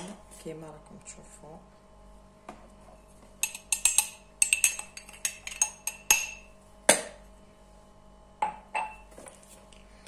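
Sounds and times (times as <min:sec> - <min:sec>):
metal spoon clinking on glass: 0:03.4 - 0:06.5.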